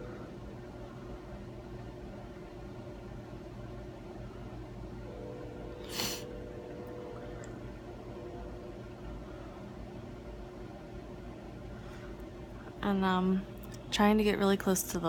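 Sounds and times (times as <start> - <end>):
low room hum: 0.0 - 15.0
short hissing rush: 5.9 - 6.3.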